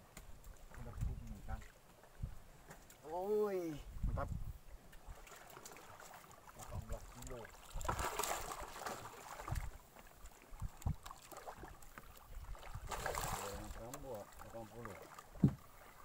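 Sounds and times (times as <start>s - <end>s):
water splashing beside hull: 4.7s - 16.0s
dull knocks: 15.4s - 15.6s.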